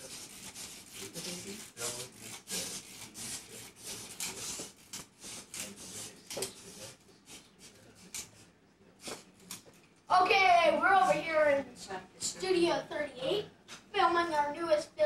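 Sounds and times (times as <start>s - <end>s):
rustling rubbing strokes: 0.0s - 9.4s.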